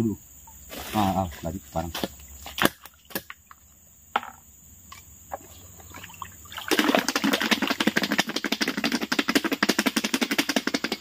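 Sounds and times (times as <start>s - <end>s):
water splashes: 5.7s - 8.3s
snail shells knocking together: 6.8s - 11.0s.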